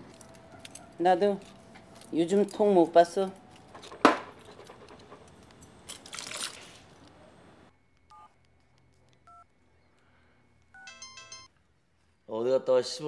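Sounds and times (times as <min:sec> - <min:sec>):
phone keypad beeps: 0:07.9 - 0:10.0, 0:10.6 - 0:11.5.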